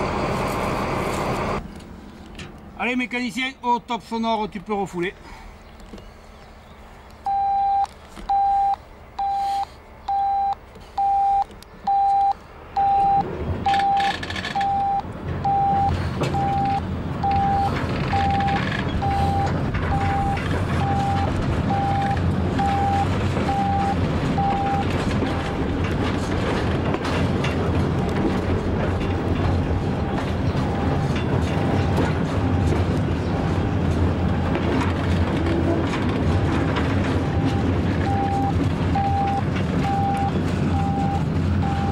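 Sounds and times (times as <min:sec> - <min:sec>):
train low rumble: 0:00.0 - 0:41.9
radio beeping: 0:07.3 - 0:24.9, 0:37.2 - 0:41.9.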